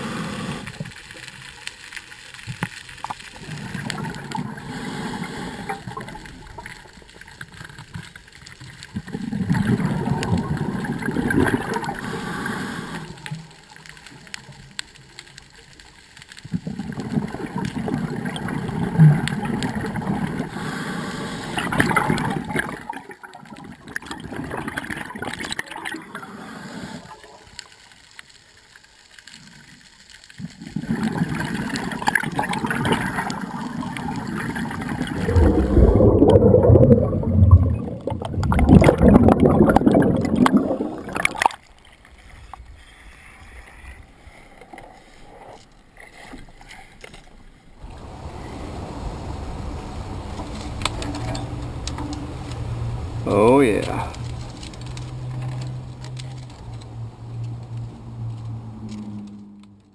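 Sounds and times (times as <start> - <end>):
underwater exhaled bubbles gurgling: 3.0 - 14.8, 16.4 - 27.4, 30.4 - 41.7.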